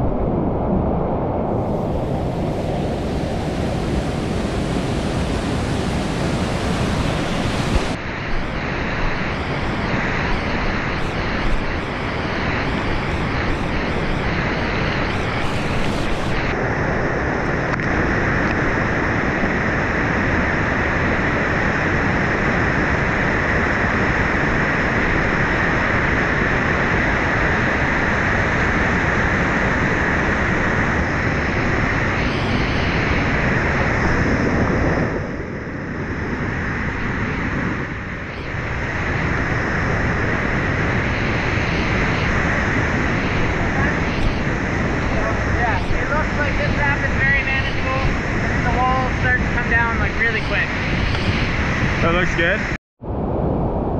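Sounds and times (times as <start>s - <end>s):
water rushing over boulders: 2.1s - 12.5s.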